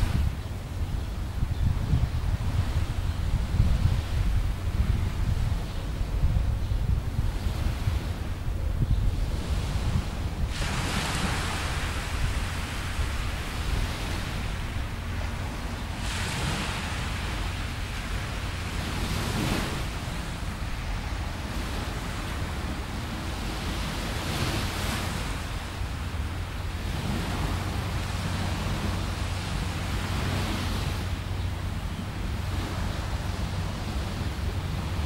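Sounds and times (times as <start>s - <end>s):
small waves breaking on sand: 0.0s - 0.8s, 9.2s - 35.0s
wind on microphone: 0.0s - 35.0s.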